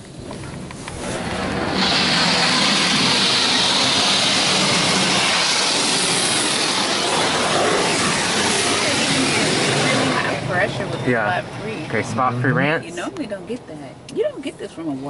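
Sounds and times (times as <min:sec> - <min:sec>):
water spray hissing on car: 0:01.0 - 0:10.6.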